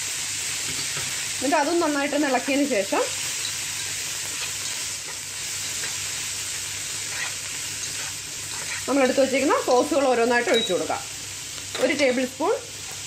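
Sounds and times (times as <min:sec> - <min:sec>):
vegetables and egg sizzling in pan: 0:00.0 - 0:13.0
spatula scraping pan: 0:06.9 - 0:10.7.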